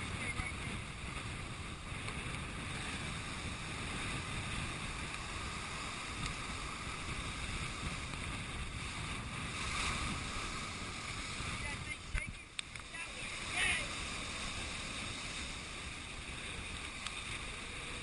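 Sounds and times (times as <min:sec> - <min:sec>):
heavy surf breaking against rocks: 0:00.0 - 0:18.0
wind on microphone: 0:00.0 - 0:18.0.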